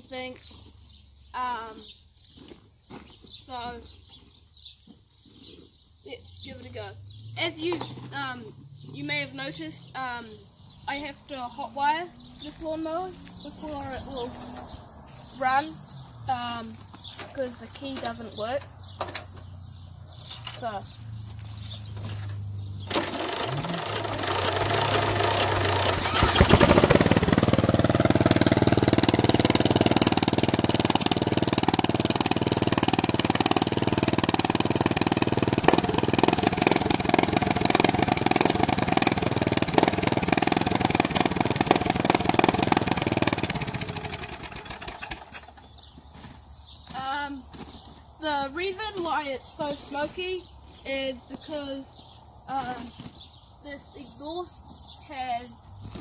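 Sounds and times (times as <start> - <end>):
lawn mower engine starting and running: 9.9 - 47.7
engine cranking: 21.9 - 45.8.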